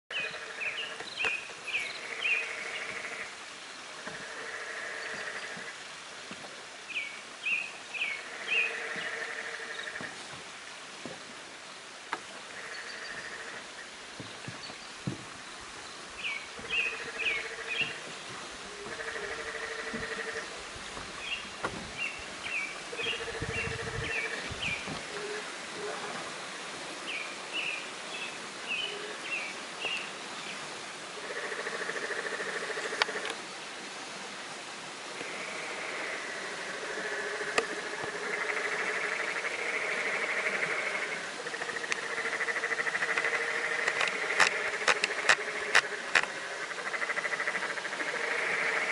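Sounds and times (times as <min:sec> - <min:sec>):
frogs trilling: 0:00.1 - 0:03.4, 0:04.0 - 0:05.8, 0:08.0 - 0:10.1, 0:12.5 - 0:14.0, 0:16.2 - 0:18.1, 0:18.8 - 0:20.6, 0:22.8 - 0:25.5, 0:31.2 - 0:33.4, 0:35.2 - 0:48.9
creek water rushing: 0:00.1 - 0:48.9.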